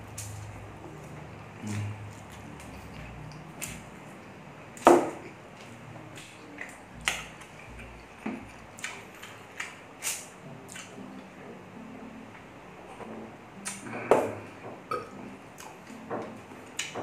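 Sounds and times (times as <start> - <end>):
chewing smacks and clicks: 8.8 - 11.0.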